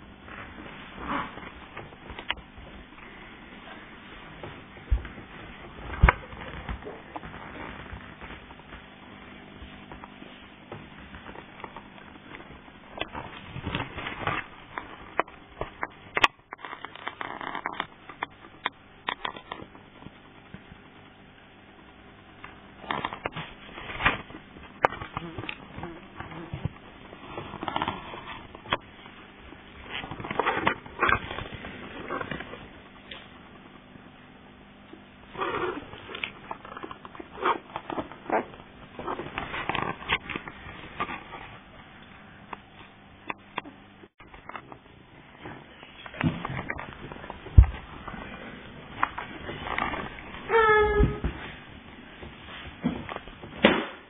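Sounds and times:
puppies scratching on blanket: 0.2s - 21.0s.

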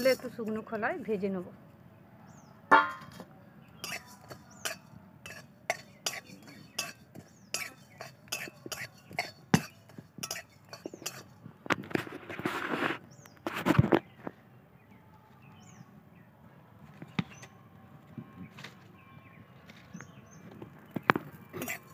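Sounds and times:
loud ringing metal clang: 2.7s - 3.2s
metal spatula scraping a pan: 3.8s - 11.3s, 21.6s - 21.9s.

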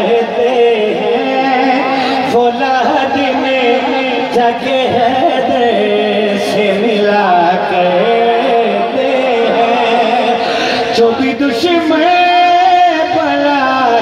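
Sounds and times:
man singing over loudspeaker: 0.0s - 14.0s.

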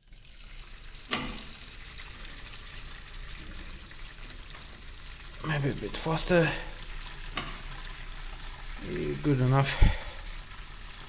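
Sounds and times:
liquid draining through pipe: 0.0s - 11.0s
sharp click: 1.1s - 1.5s.

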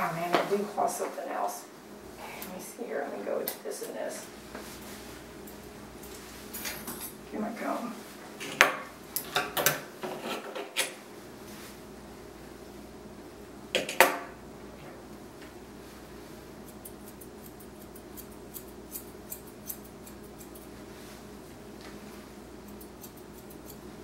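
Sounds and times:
grooming shears snipping: 16.7s - 20.7s.

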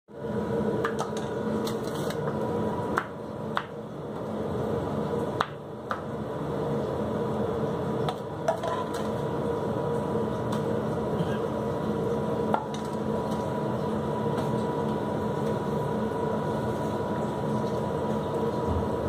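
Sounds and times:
kitchen equipment hum: 0.1s - 19.0s.

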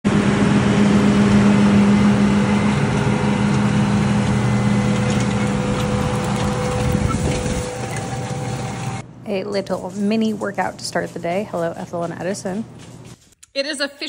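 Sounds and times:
tractor diesel engine droning: 0.1s - 9.0s.

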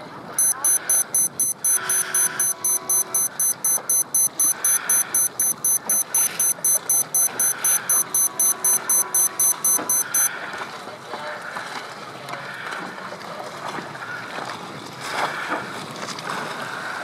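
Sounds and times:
rapid high-pitched electronic beeps: 0.4s - 10.3s.

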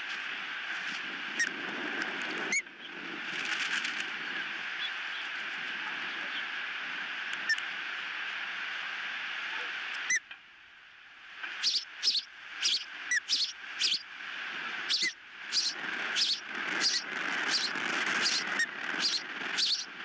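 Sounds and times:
ospreys chirping: 11.5s - 14.1s, 14.8s - 20.0s.

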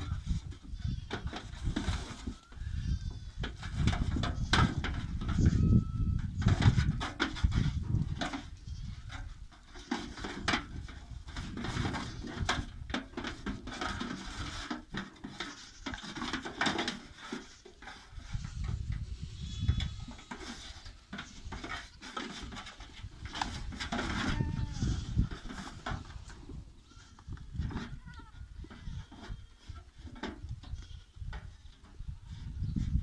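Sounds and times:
goat bleating: 0.0s - 1.4s, 2.2s - 3.7s, 17.4s - 22.1s, 24.0s - 25.7s, 26.8s - 29.9s
hooves knocking on metal: 3.0s - 31.5s.

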